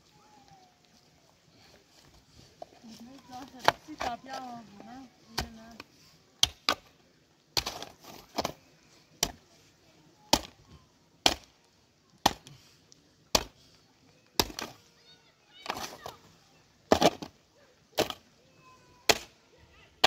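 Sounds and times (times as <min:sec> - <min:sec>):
hand tool chopping: 0:11.2 - 0:11.4.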